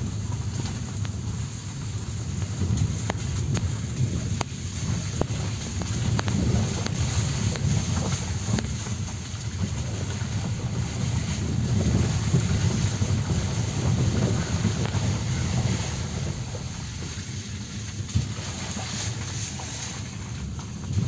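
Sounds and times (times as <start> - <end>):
car driving on rough dirt track: 0.0 - 21.0.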